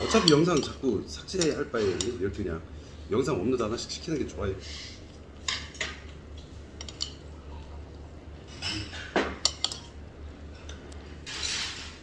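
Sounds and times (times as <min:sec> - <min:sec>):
chopsticks clinking on ceramic bowl: 0:00.0 - 0:02.2, 0:06.8 - 0:07.3, 0:08.5 - 0:10.0
steady low hum: 0:00.0 - 0:12.0.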